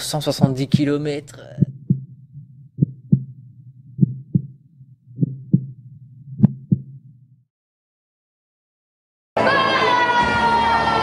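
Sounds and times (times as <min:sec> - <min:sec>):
heartbeat thumps: 0:00.2 - 0:07.4.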